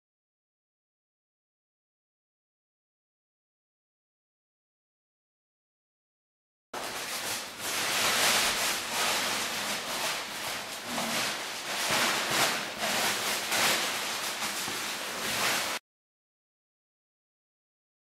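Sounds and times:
ventilation air rushing: 6.8 - 15.8.

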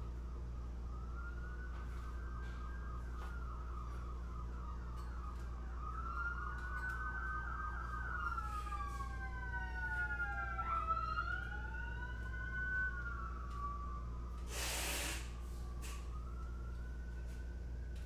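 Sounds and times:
emergency sirens wailing: 0.0 - 18.0
burst of hiss: 14.5 - 15.4.

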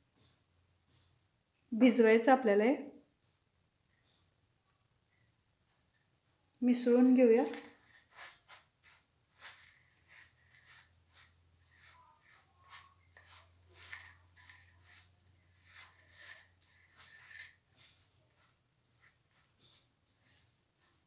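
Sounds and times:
fingers rustling crumbs in steel bowl: 7.1 - 21.0.

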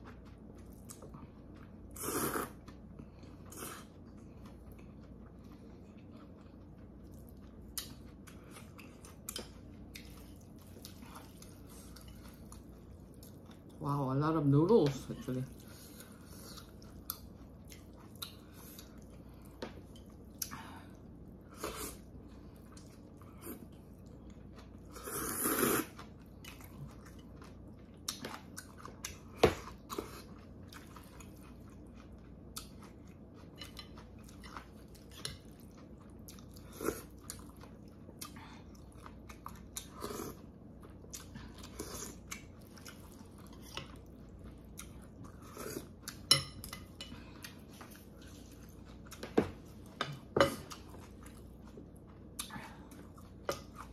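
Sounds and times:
person chewing noodles: 0.0 - 13.8, 15.4 - 53.9
slurping noodles: 2.0 - 2.6, 24.9 - 26.0.

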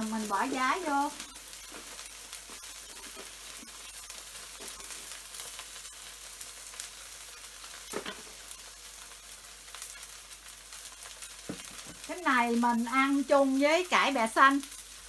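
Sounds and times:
batter sizzling in oil: 0.0 - 15.0.

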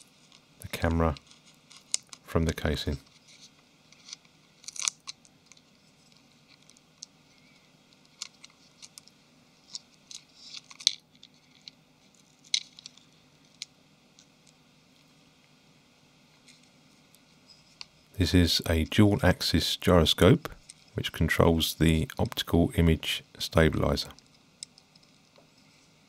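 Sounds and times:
small clicks and scratches of prying: 1.1 - 2.3, 2.9 - 15.1, 16.4 - 18.0, 24.2 - 25.4.

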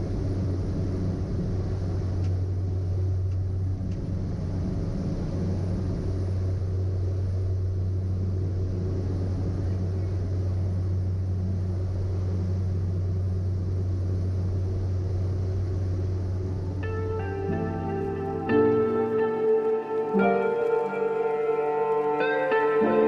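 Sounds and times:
turboprop engine drone: 0.0 - 23.0
music: 16.7 - 23.0.

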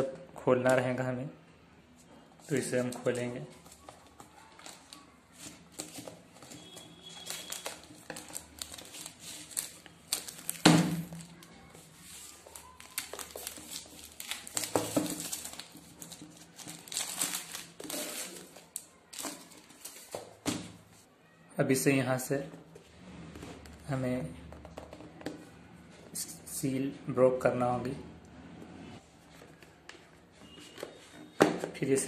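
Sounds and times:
plastic wrap crinkling: 2.5 - 20.4.

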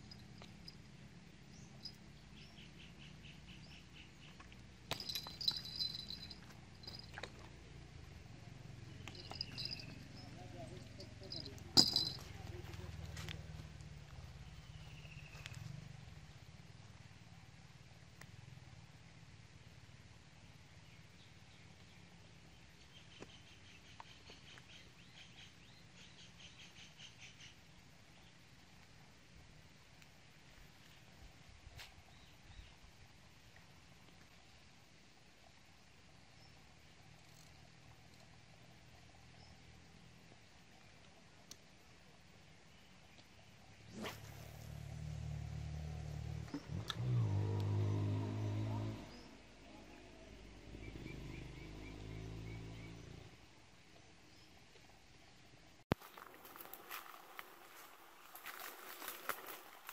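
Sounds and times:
low steady hum: 0.0 - 23.1
small birds chirping: 1.4 - 7.3, 8.7 - 16.0, 20.9 - 28.4, 49.0 - 53.4.

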